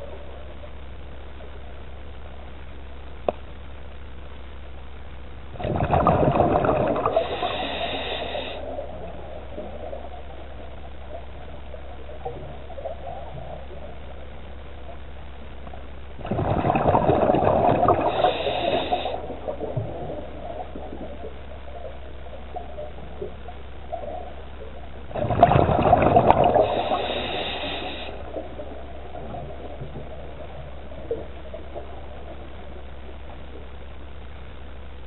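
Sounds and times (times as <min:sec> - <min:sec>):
steady low hum: 0:00.0 - 0:35.0
diver breathing through regulator: 0:06.7 - 0:08.9, 0:17.7 - 0:19.3, 0:26.2 - 0:28.4.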